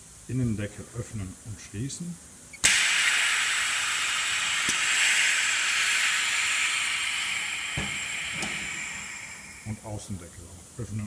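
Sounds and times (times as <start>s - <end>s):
compressed air hissing: 2.5s - 11.0s.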